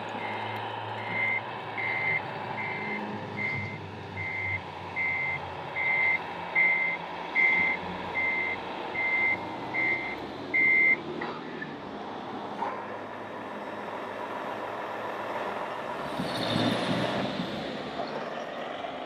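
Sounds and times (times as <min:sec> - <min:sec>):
reverse warning beeper: 0:01.0 - 0:11.0.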